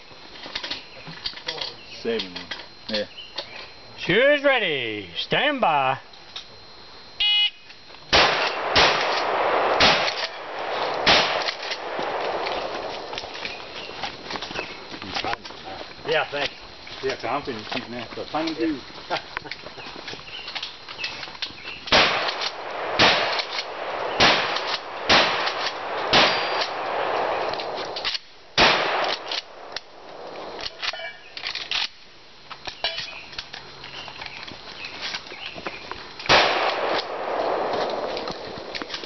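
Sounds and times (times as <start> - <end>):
shotgun shots: 8.1 - 13.7, 21.9 - 30.9, 36.3 - 39.0.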